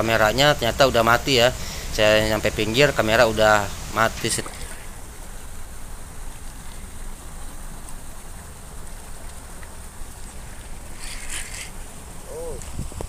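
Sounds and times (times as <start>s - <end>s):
small waves lapping on concrete: 3.4s - 13.0s
short scratchy rasp: 11.0s - 11.8s
wind on microphone: 12.2s - 13.0s.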